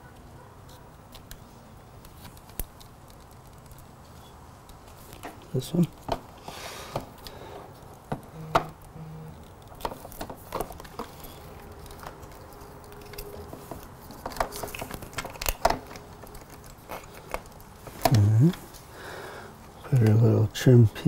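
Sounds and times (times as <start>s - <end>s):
plastic parts clicking: 8.0s - 18.6s.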